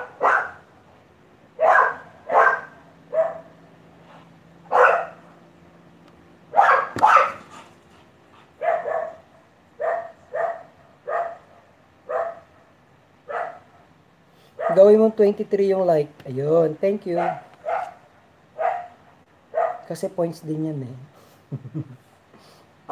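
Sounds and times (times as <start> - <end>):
dog barking: 0.0 - 0.7, 1.6 - 3.6, 4.7 - 5.3, 6.5 - 7.6, 8.6 - 12.6, 13.2 - 13.8, 14.6 - 14.9, 17.2 - 19.9.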